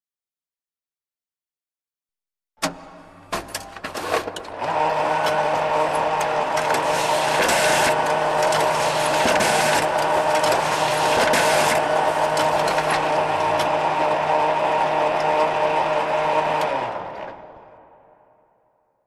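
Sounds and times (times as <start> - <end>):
photocopier motor hum and whir: 2.7 - 17.4
photocopier clicks: 3.4 - 14.2
photocopier rushing passes: 4.6 - 17.3.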